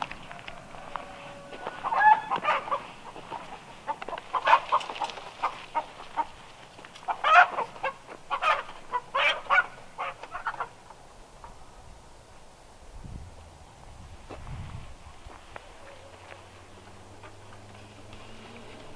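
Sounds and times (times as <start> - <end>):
chickens clucking: 0.0 - 11.6.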